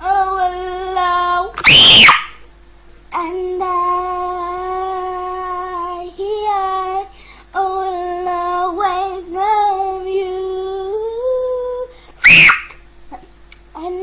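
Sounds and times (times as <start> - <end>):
girl singing long held notes: 0.0 - 1.6, 3.1 - 12.0.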